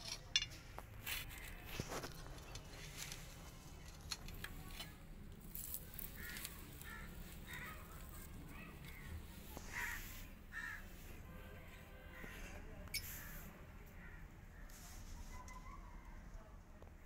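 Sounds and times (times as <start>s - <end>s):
rustling: 0.0s - 11.2s.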